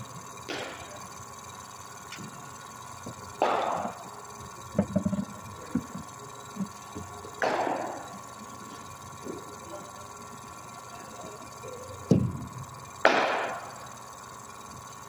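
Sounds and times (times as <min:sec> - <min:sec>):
steady hum: 0:00.0 - 0:15.0
sharp ball impacts: 0:00.4 - 0:01.2, 0:03.1 - 0:10.6, 0:11.8 - 0:13.8.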